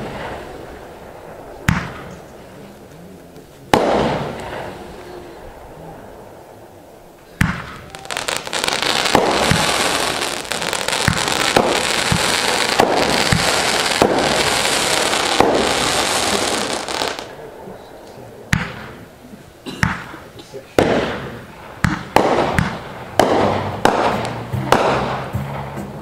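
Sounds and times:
firework bang: 0.0s - 2.4s, 3.7s - 5.6s, 7.4s - 17.3s, 20.8s - 25.8s
firework crackle and hiss: 0.0s - 26.0s.

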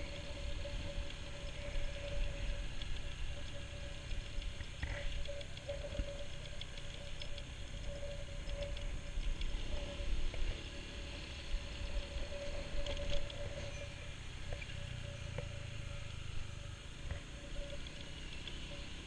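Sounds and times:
wind rumbling on microphone: 0.0s - 19.0s
scooter engine humming: 9.0s - 19.0s.

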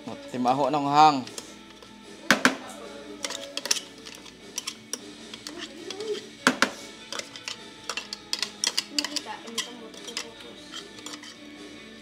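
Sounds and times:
soft background music: 0.0s - 12.0s
plastic bowl tapping on pail: 2.3s - 2.7s, 6.4s - 6.8s.

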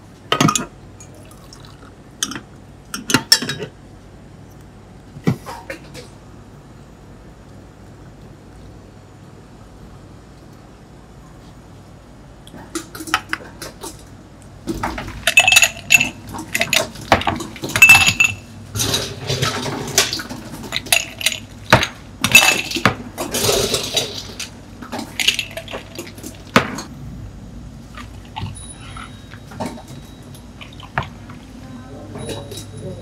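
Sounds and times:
ice cubes clattering into glasses: 14.8s - 26.6s.

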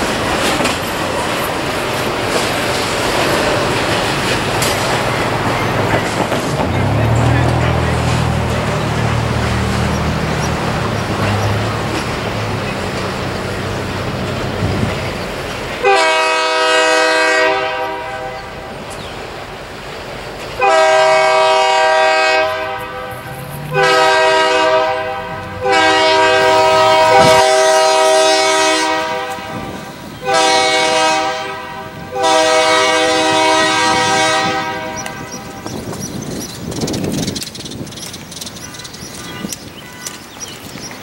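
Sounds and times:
slow train rumbling: 0.0s - 41.0s
locomotive air horn blasts: 15.8s - 18.7s, 20.6s - 35.6s.

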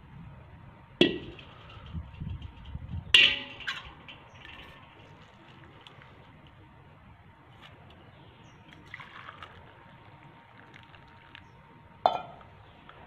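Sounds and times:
steel vessels clinking: 1.0s - 5.9s, 12.0s - 12.5s
liquid trickling and splashing: 8.6s - 11.6s.

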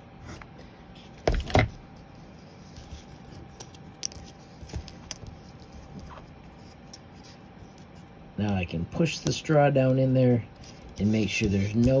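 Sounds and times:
rubbing of cardboard and plastic: 10.6s - 12.0s.

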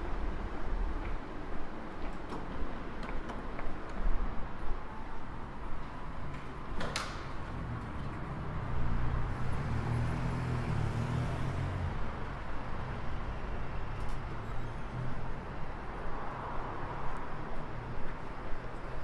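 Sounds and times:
street traffic: 0.0s - 19.0s.

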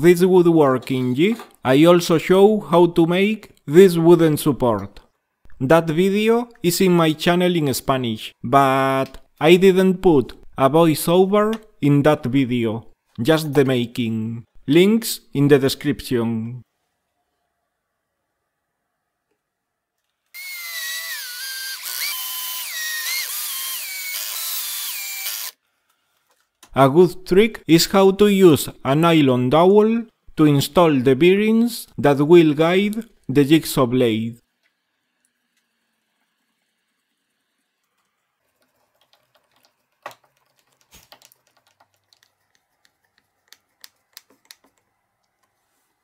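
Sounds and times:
power drill motor whine: 20.4s - 25.6s
light clicks and taps of parts: 38.6s - 45.6s.

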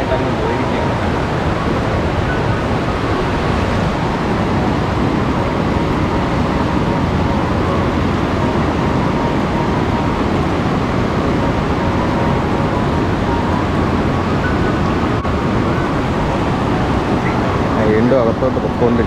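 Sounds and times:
river rapids rushing: 0.0s - 19.0s.

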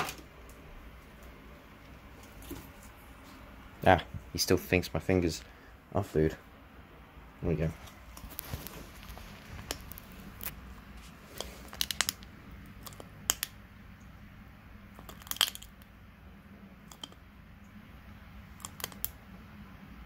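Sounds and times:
snail shell cracking: 8.1s - 10.6s, 11.4s - 13.6s, 14.9s - 15.9s, 16.8s - 17.3s, 18.5s - 19.2s.

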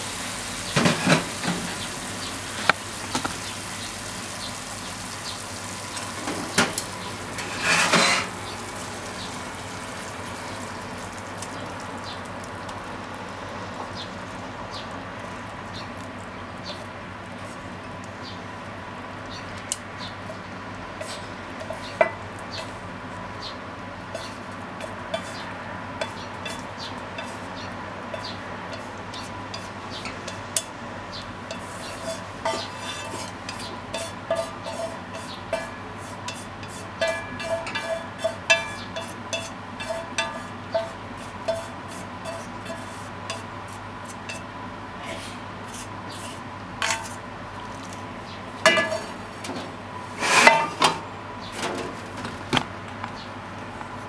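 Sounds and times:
steady background hum: 0.0s - 54.0s
pan clanking on stove grate: 0.7s - 1.8s, 6.2s - 8.4s, 31.5s - 43.5s, 48.6s - 52.0s
chopsticks scraping a metal pan: 7.4s - 8.4s, 21.0s - 22.0s, 24.1s - 25.4s, 26.0s - 26.6s, 27.2s - 27.4s, 31.5s - 44.4s, 50.2s - 50.9s.

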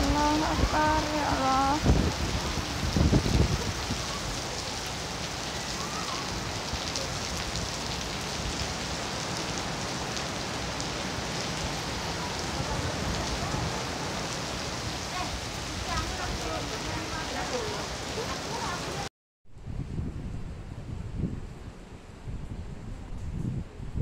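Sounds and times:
wind buffeting microphone: 0.0s - 4.4s, 19.5s - 24.0s
heavy rain on trees and paving: 0.0s - 19.1s.

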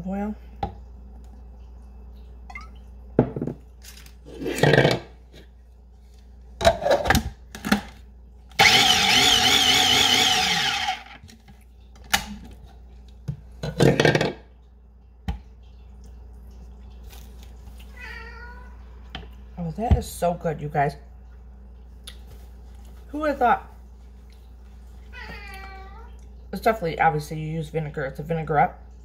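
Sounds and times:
food processor motor whine: 8.6s - 11.2s.

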